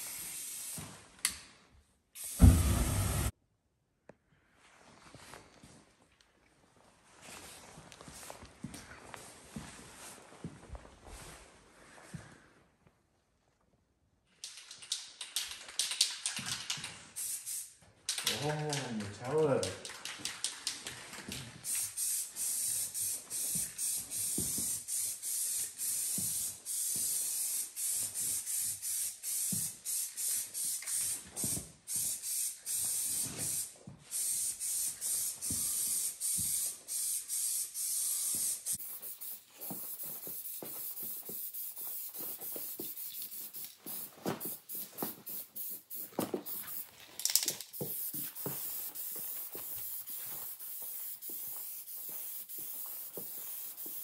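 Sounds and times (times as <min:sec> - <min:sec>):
aerosol spray can hissing: 0:00.0 - 0:00.9, 0:02.2 - 0:03.3, 0:17.2 - 0:18.4, 0:21.6 - 0:54.0.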